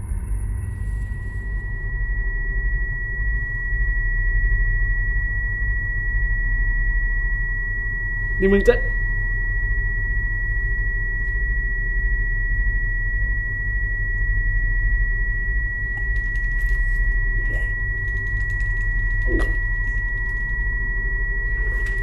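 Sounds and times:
deep low drone: 0.0 - 22.0
high-pitched ringing tone: 0.0 - 22.0.

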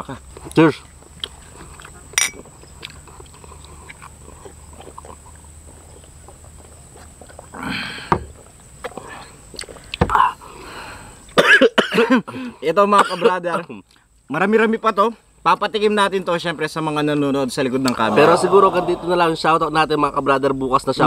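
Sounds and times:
glass clinking: 2.2 - 2.4
men exhaling: 7.6 - 8.2, 17.9 - 19.5.

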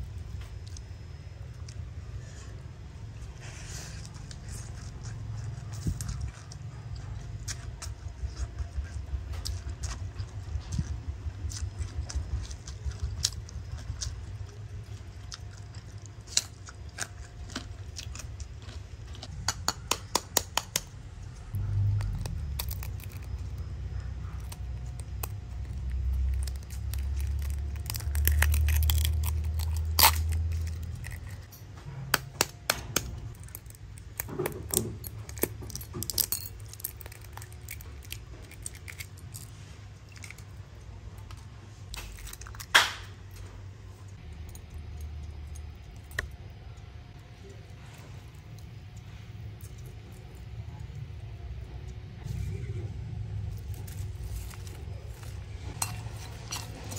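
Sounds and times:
low rumble: 21.0 - 32.0.

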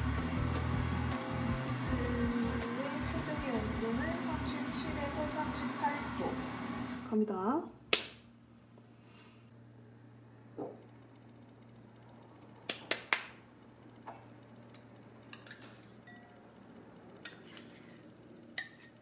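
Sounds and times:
whisk clinking against glass: 15.3 - 16.4, 18.6 - 19.0.

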